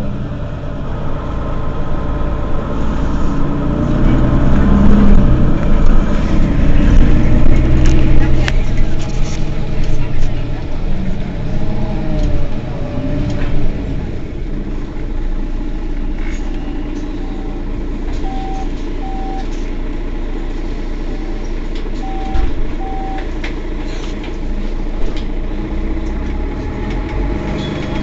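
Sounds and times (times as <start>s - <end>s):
bus engine idling: 0.0s - 28.0s
short electronic beeps: 18.2s - 19.5s, 22.0s - 23.2s.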